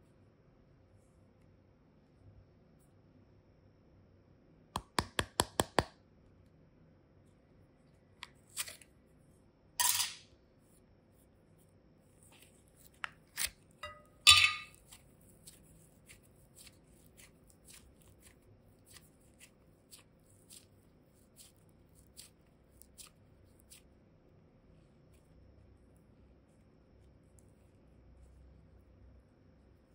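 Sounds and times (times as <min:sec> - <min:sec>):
clay being squeezed: 0:14.7 - 0:24.0.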